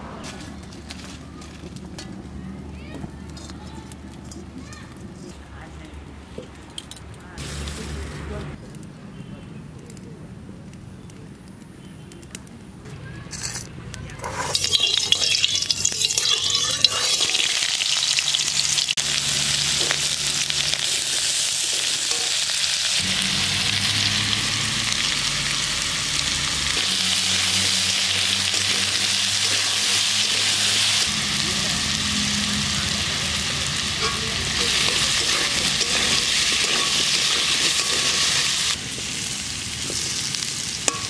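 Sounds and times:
metal spatula stirring: 13.3 - 18.3, 28.4 - 30.7, 33.9 - 38.8
potatoes sizzling in oil: 14.4 - 41.0.

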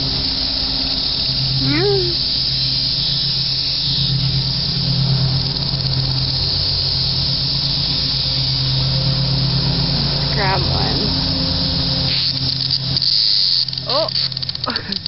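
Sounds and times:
cicadas chorus hissing: 0.0 - 15.0.

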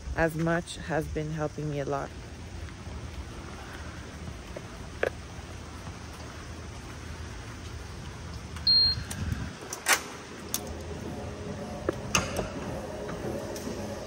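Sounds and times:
short high beep: 8.7 - 9.1.

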